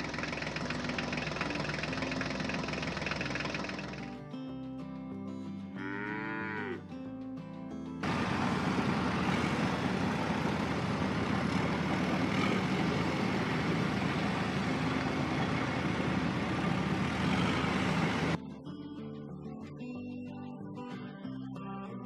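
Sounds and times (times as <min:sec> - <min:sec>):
heavy vehicle engine running: 0:00.0 - 0:04.2, 0:08.0 - 0:18.4.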